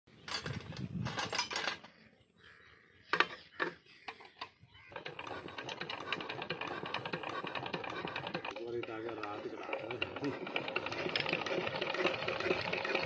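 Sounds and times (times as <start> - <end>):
metal tools clinking: 0.2 - 2.0
steady ticking: 4.9 - 13.0.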